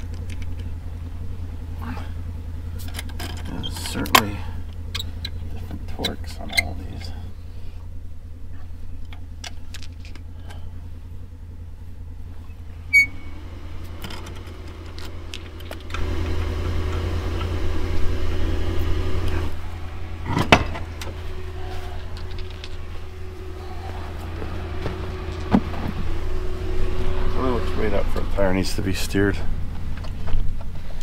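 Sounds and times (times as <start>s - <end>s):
vehicle engine idling: 0.0s - 31.0s
wheel thumping: 13.9s - 27.2s.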